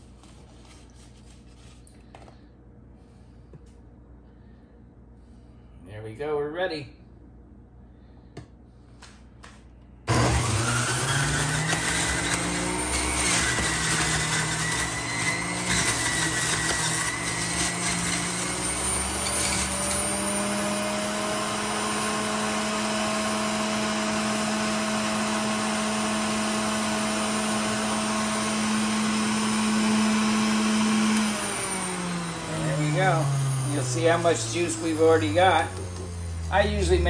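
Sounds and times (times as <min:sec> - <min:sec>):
juicer motor running: 0:10.1 - 0:37.0.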